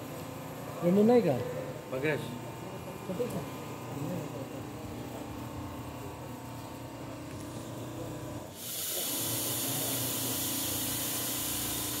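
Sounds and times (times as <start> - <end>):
low machine hum: 0.0 - 12.0
even hiss: 8.5 - 12.0.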